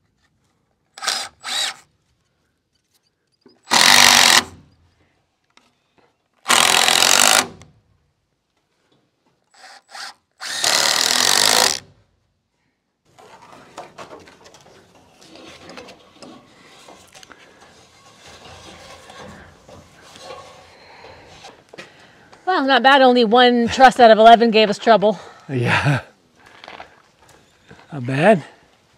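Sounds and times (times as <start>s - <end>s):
cordless drill driving screws: 1.0s - 1.9s, 3.6s - 4.6s, 6.4s - 7.7s, 9.5s - 11.9s.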